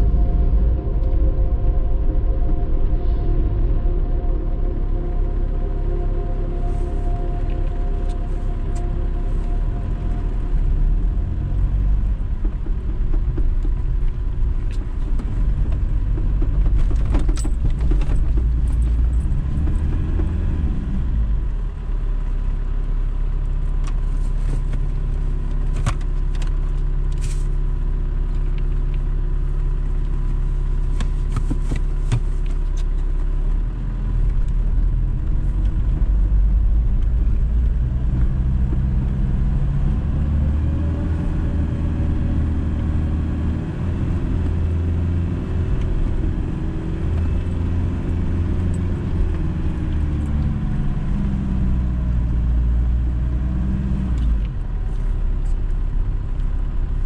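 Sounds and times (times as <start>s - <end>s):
vehicle engine and tyre noise: 0.0s - 57.0s
sharp clicks and rattles: 11.8s - 20.4s.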